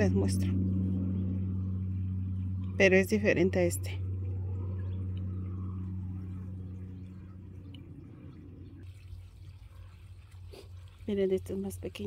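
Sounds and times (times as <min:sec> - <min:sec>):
faint higher hum: 0:00.0 - 0:09.3
steady low hum: 0:00.0 - 0:12.0.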